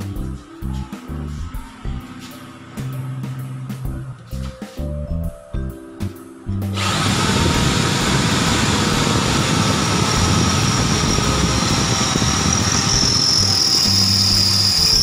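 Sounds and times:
background music: 0:00.0 - 0:15.0
electric drill grinding into steel: 0:06.8 - 0:15.0.

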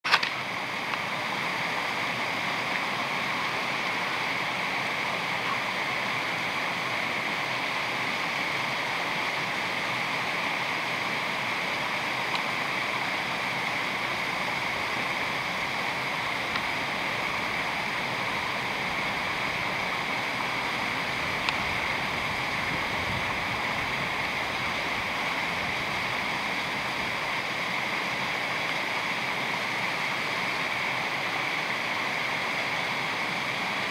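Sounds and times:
stream water rushing down cascade: 0:00.1 - 0:33.9.

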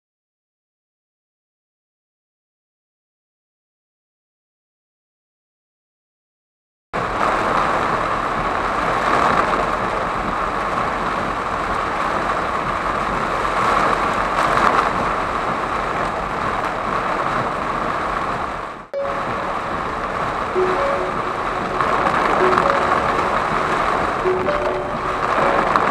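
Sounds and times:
heavy rain on a car: 0:07.0 - 0:25.9.

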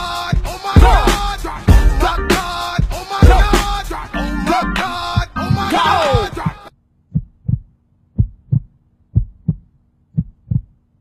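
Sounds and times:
hip hop music: 0:00.0 - 0:06.7
heartbeat thumps: 0:00.4 - 0:01.1, 0:06.2 - 0:10.8.

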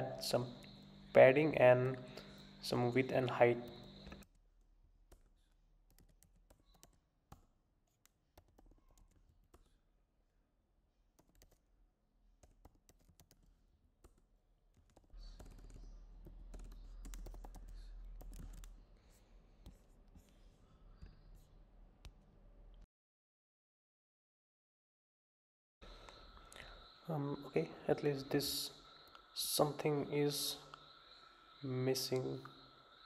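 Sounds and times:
keyboard typing: 0:05.1 - 0:09.8, 0:11.2 - 0:11.6, 0:12.4 - 0:18.8.

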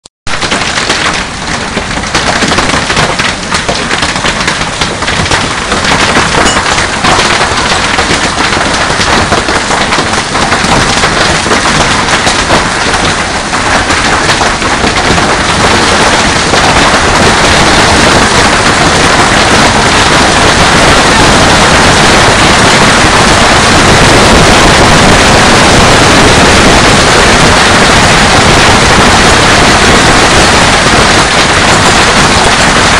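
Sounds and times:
hailstones clattering: 0:00.3 - 0:32.9
heavy rain hissing: 0:11.8 - 0:32.9.

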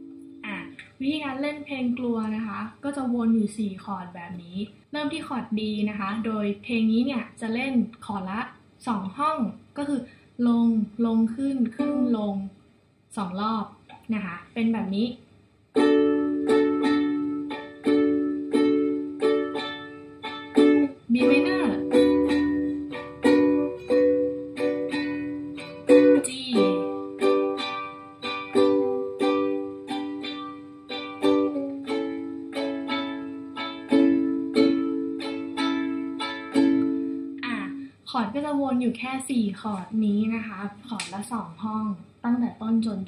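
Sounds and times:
ukulele strumming: 0:00.0 - 0:00.8, 0:15.8 - 0:37.4.

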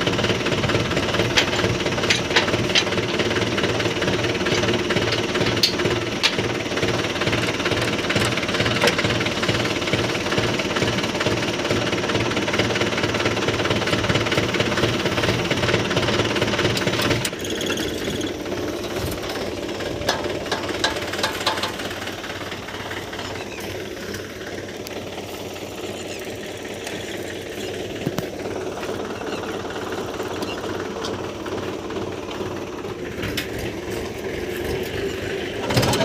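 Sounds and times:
tractor diesel engine idling: 0:00.0 - 0:36.0.

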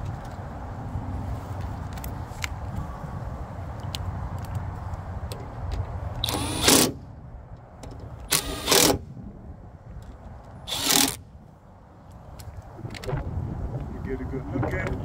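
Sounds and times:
power driver spinning: 0:10.7 - 0:11.2.

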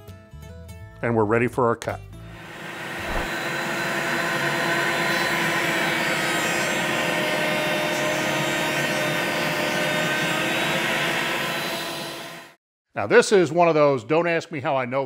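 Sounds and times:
router whining while cutting wood: 0:02.4 - 0:12.6.

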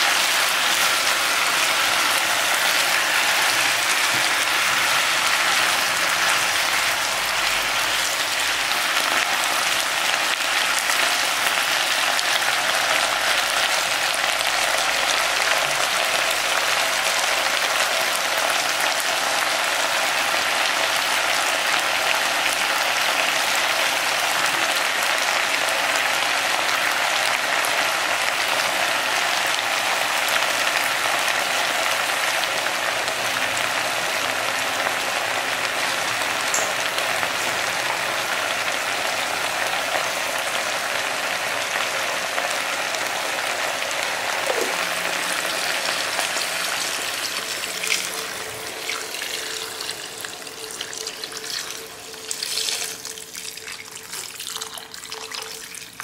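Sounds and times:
chicken frying in a pan: 0:00.0 - 0:56.0
water pouring: 0:43.6 - 0:56.0.

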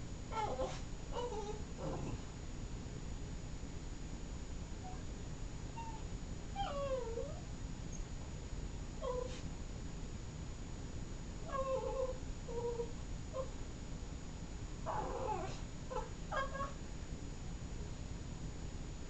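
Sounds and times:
dog whining: 0:00.3 - 0:02.2, 0:05.8 - 0:08.0, 0:09.0 - 0:09.4, 0:11.5 - 0:13.5, 0:14.9 - 0:16.8.

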